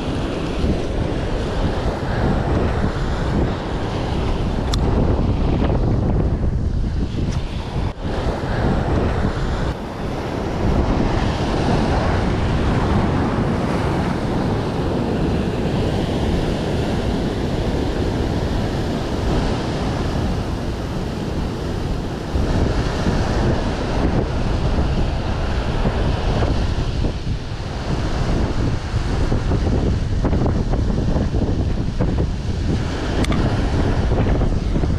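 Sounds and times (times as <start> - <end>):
ocean surf breaking on rocks: 0.0 - 34.9
wind buffeting microphone: 0.0 - 34.9.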